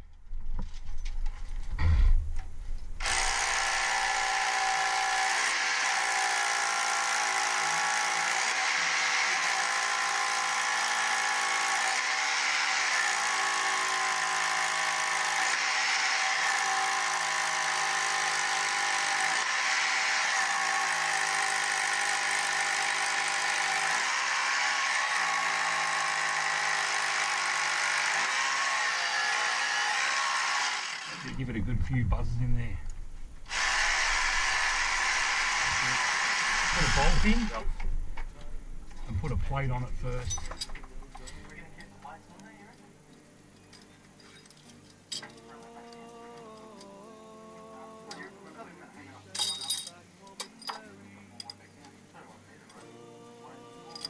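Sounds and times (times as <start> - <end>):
rotary hammer drill boring into rock: 3.0 - 31.4, 33.5 - 37.6.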